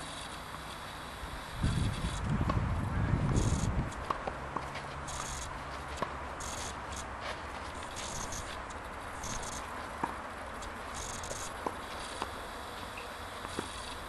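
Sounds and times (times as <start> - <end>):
steady outdoor hiss: 0.0 - 14.0
tennis balls struck by rackets: 2.4 - 4.9, 9.6 - 10.2, 11.6 - 12.4, 13.0 - 13.7.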